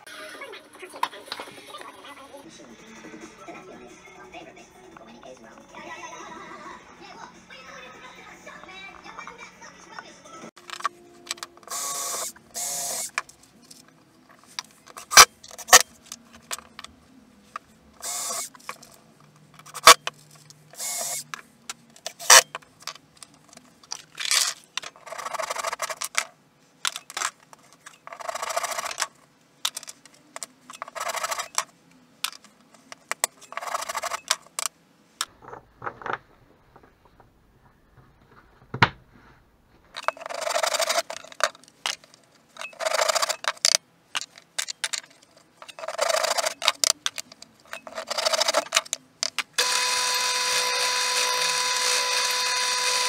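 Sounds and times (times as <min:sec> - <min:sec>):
cordless drill boring into wood: 0:11.7 - 0:13.2, 0:18.0 - 0:18.5, 0:20.8 - 0:21.2, 0:49.6 - 0:53.0.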